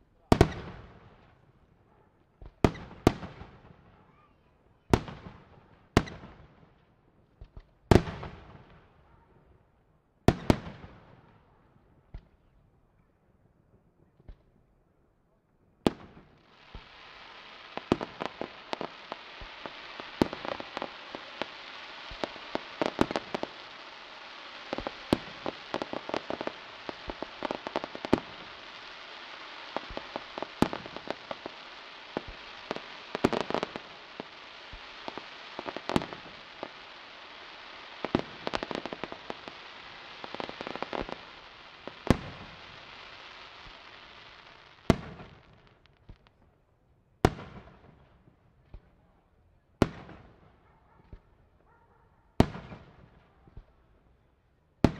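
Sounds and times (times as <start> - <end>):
firework crackle: 16.0 - 46.3
firework shells bursting: 16.7 - 44.0.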